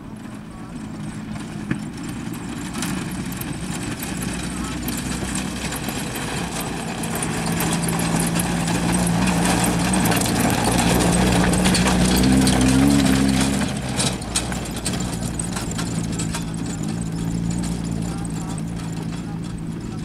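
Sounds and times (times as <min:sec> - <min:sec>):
car engine running: 0:00.0 - 0:20.0
tyres crunching over stones: 0:04.1 - 0:20.0.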